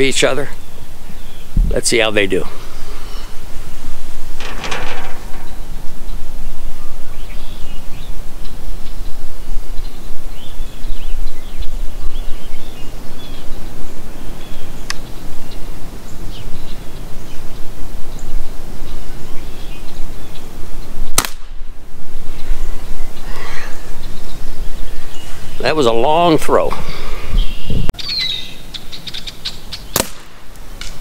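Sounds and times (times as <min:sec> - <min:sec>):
wind rumble on microphone: 0:00.0 - 0:25.8, 0:26.7 - 0:28.0
small birds chirping: 0:00.0 - 0:31.0
sharp crack: 0:21.1 - 0:21.7, 0:29.9 - 0:31.0.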